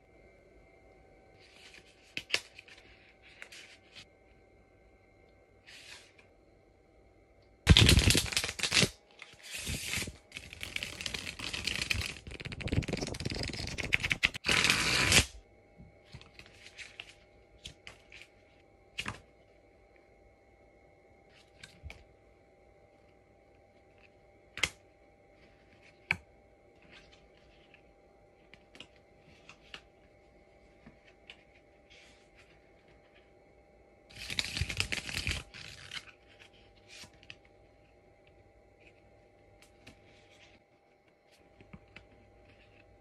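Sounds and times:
playing cards snapping: 7.7s - 9.0s
cards fluttering: 7.7s - 15.4s, 34.1s - 37.2s.

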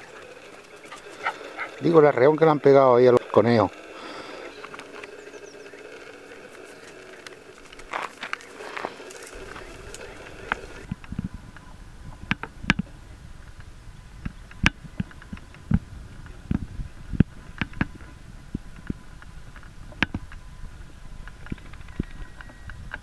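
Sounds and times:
twigs snapping and rustling: 6.5s - 10.8s.

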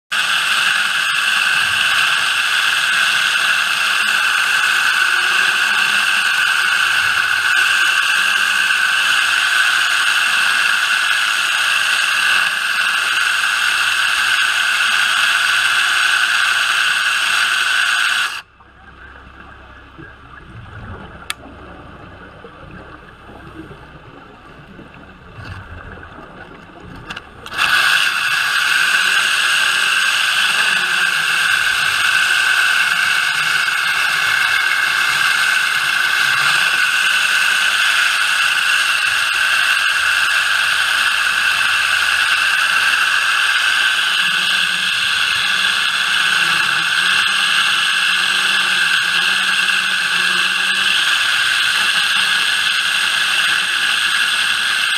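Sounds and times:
underwater saw whining: 0.0s - 54.9s
low rumble: 18.5s - 27.5s
click: 21.3s - 21.5s.

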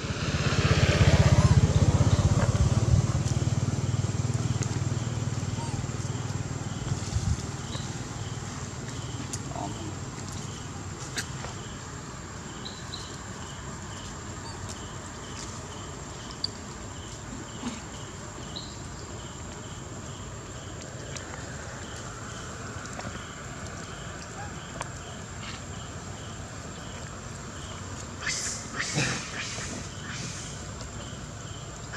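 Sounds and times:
low background rumble: 0.0s - 17.0s
insect high drone: 0.0s - 31.9s.

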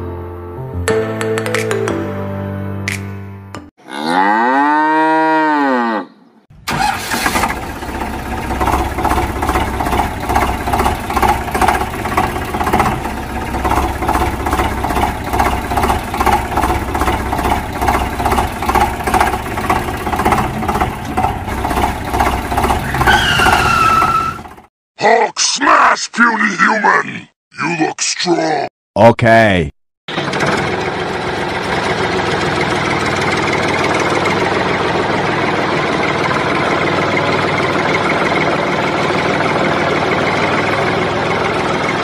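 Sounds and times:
cow mooing: 3.8s - 6.2s
tractor engine running: 6.5s - 24.7s, 30.1s - 42.0s.

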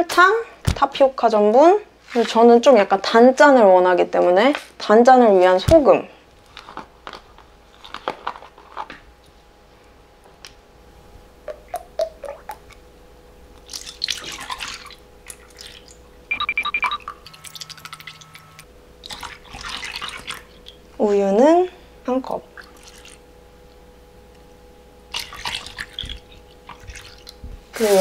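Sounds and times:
liquid dripping: 11.4s - 12.8s, 13.5s - 21.0s, 22.5s - 23.8s, 25.1s - 27.4s
cream pouring and splashing: 13.6s - 15.9s, 19.0s - 20.7s.

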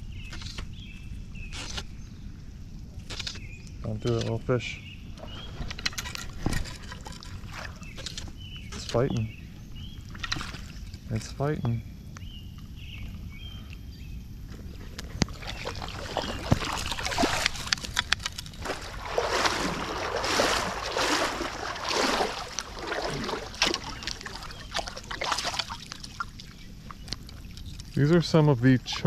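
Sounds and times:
steps sloshing through water: 5.1s - 9.2s, 10.0s - 11.1s, 14.6s - 28.0s
water splashing: 6.4s - 8.2s, 14.7s - 28.4s
rain pattering on water: 15.2s - 28.8s.

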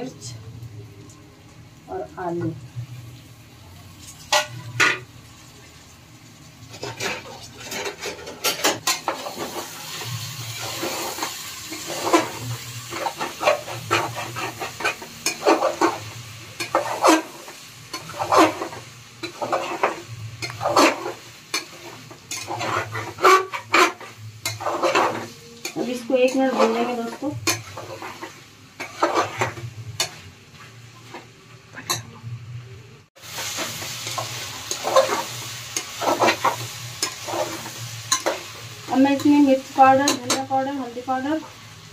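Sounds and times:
vegetables sizzling in oil: 0.0s - 41.9s
metal spoon scraping a pot: 6.7s - 16.0s, 16.6s - 30.2s, 34.0s - 38.4s.

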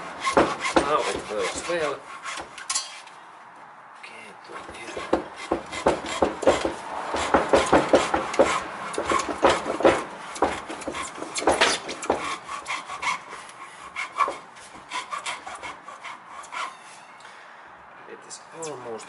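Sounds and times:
hacksaw cutting pipe: 0.0s - 3.1s, 4.5s - 16.8s.

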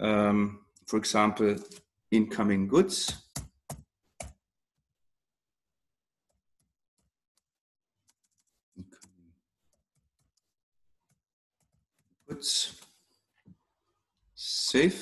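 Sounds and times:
keyboard typing: 3.1s - 4.4s, 6.3s - 12.9s.

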